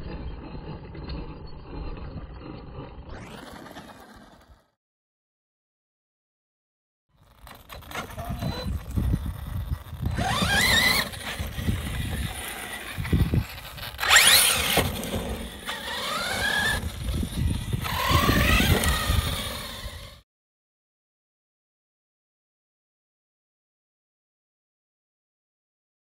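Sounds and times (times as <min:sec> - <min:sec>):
electric motor whining: 0:07.2 - 0:20.2
tyres rumbling on ground: 0:07.2 - 0:20.2.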